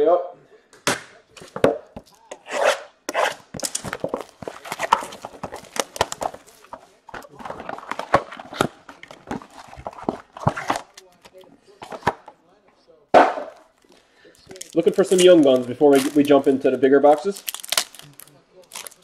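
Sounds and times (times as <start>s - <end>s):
wrappers crackling and ripping: 3.2s - 11.2s, 13.8s - 19.0s.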